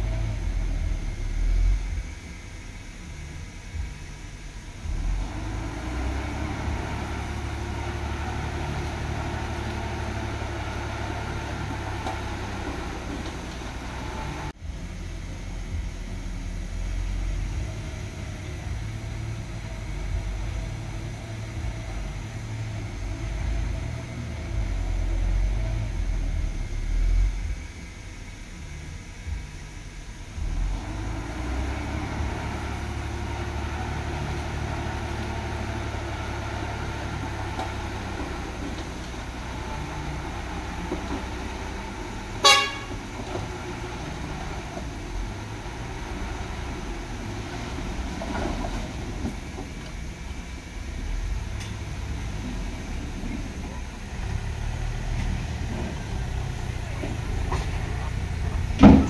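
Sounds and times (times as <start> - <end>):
diesel machinery engine rumble: 0.0 - 59.0
short horn toot: 42.4 - 43.0.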